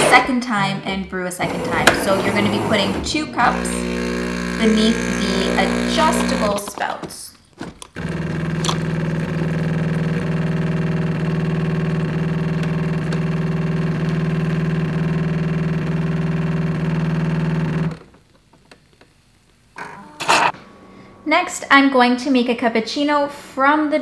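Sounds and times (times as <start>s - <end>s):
espresso machine humming: 1.6s - 6.8s, 8.0s - 17.9s.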